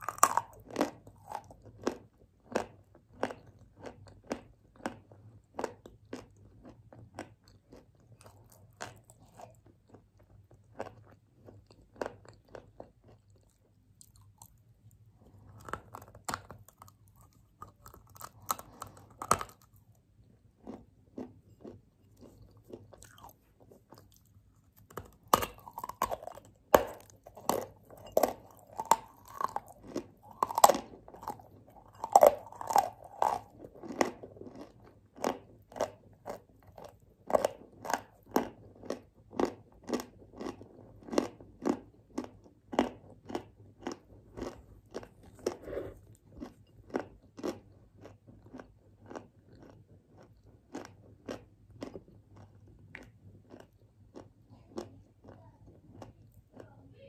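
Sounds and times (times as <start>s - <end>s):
crunching and chewing: 0.0s - 56.8s.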